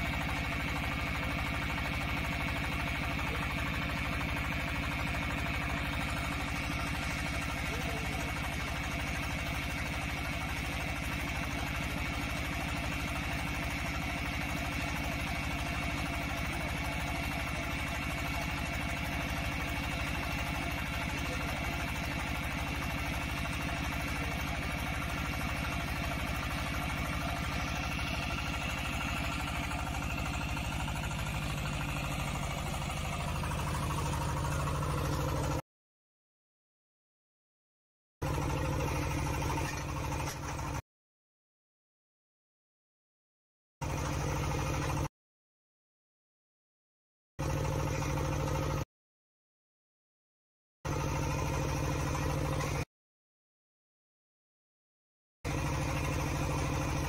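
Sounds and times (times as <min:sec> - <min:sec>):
drilling rig engine running: 0:00.0 - 0:35.6, 0:38.2 - 0:40.8, 0:43.8 - 0:45.1, 0:47.4 - 0:48.8, 0:50.9 - 0:52.9, 0:55.5 - 0:57.0.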